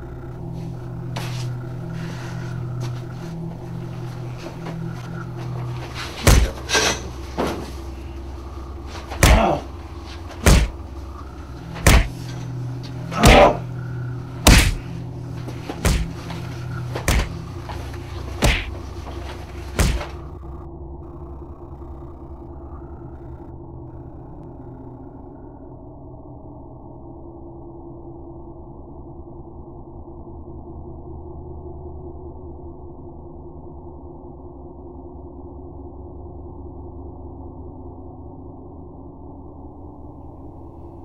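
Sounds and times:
low steady drone: 0.0 - 41.0
punches landing: 4.4 - 8.0, 8.9 - 20.4.

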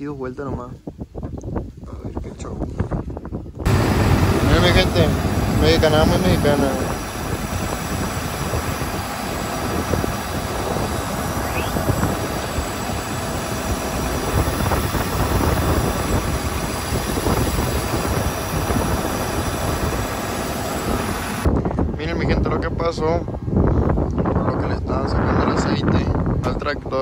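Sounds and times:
tractor engine rumbling and rattling: 2.0 - 22.2.

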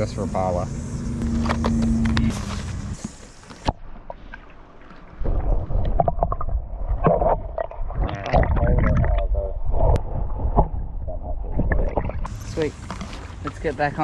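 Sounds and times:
wind rumble on microphone: 5.2 - 13.0
water sloshing around kayak: 11.7 - 14.0.

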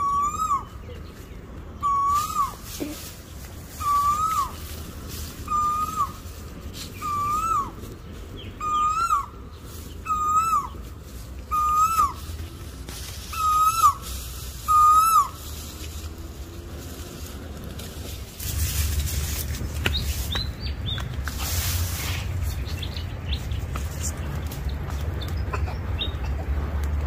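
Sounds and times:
bird whistled call: 0.0 - 1.0, 1.8 - 2.6, 3.8 - 4.6, 5.4 - 6.2, 6.9 - 7.8, 8.5 - 9.3, 10.0 - 10.8, 11.5 - 12.2, 13.3 - 15.4
low steady rumble: 0.0 - 27.0.

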